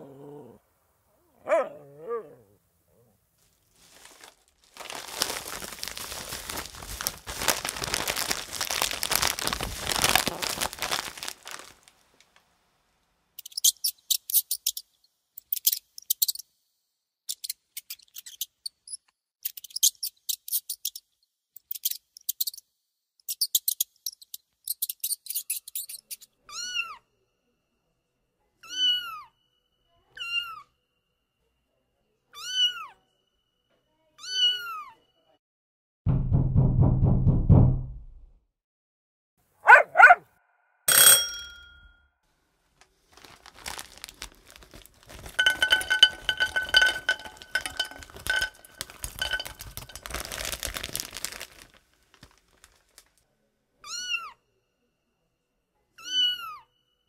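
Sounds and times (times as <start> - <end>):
high-pitched squeaky chirps: 13.4 - 14.8, 17.3 - 21.0, 21.6 - 22.6, 23.3 - 26.3.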